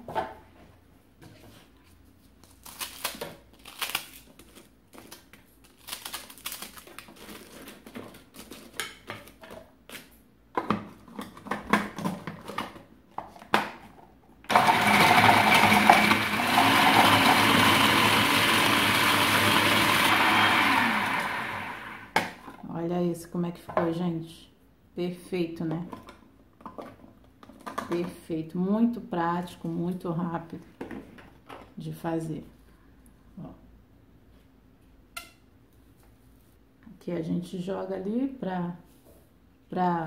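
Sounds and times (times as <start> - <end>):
food processor grinding bread: 14.5 - 22.2.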